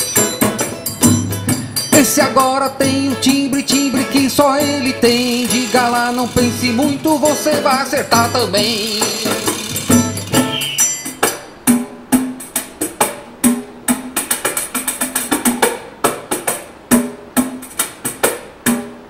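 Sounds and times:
hand percussion with jingles: 0:00.0 - 0:11.5.

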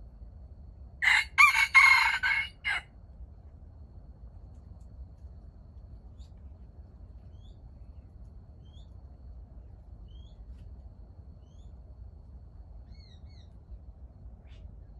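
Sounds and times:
small bird chirping: 0:07.2 - 0:09.0, 0:10.0 - 0:10.5, 0:11.4 - 0:11.8, 0:12.8 - 0:13.6, 0:14.4 - 0:14.9.

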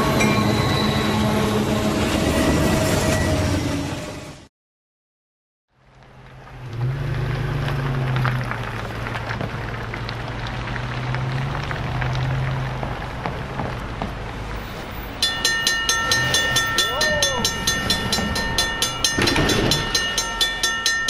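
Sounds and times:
grade crossing bell ringing: 0:00.0 - 0:01.2, 0:15.1 - 0:21.0
diesel locomotive engines droning: 0:00.0 - 0:04.5, 0:14.8 - 0:21.0.

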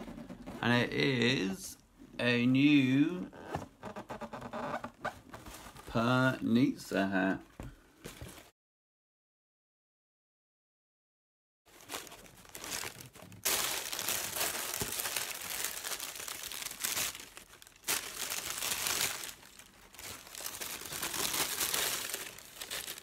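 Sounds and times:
tissue paper and plastic crinkling: 0:11.7 - 0:23.0.

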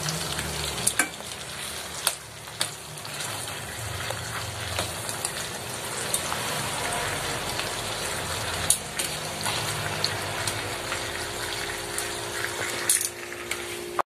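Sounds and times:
chicken sizzling in a pan: 0:00.0 - 0:14.0
metal tongs clicking on pan: 0:00.8 - 0:01.2, 0:08.6 - 0:09.2.

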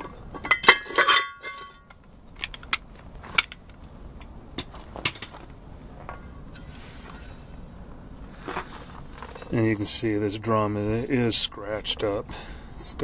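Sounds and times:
metal clanks ringing: 0:00.0 - 0:02.6.

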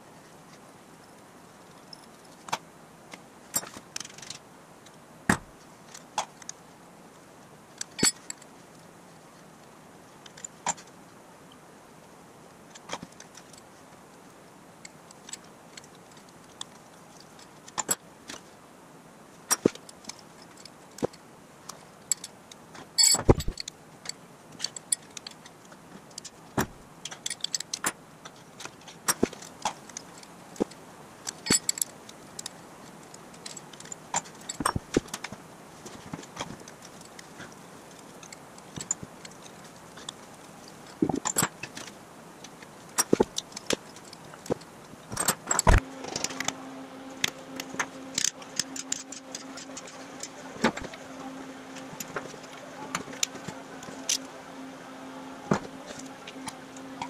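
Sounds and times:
metal tools clinking on engine parts: 0:03.5 - 0:04.4, 0:07.8 - 0:08.4, 0:23.0 - 0:25.5, 0:27.0 - 0:28.0, 0:31.3 - 0:32.5, 0:47.8 - 0:50.9.

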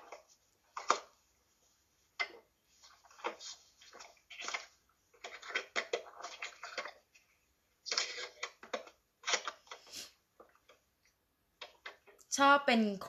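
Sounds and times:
kitchen clatter and rustling: 0:02.2 - 0:10.6.

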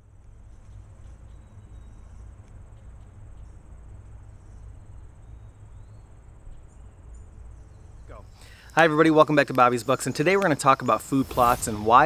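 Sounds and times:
insects trilling: 0:00.0 - 0:12.0
low rumble: 0:10.9 - 0:12.0.

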